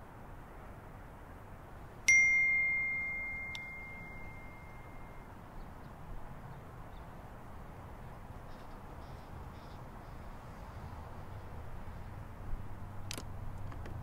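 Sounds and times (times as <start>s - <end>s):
low background hiss: 0.0s - 13.6s
phone notification ding: 2.1s - 5.2s.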